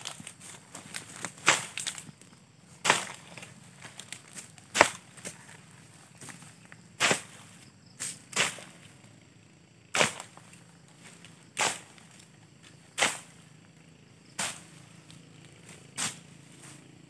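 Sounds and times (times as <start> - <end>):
dry stems cracking: 0.0 - 6.5.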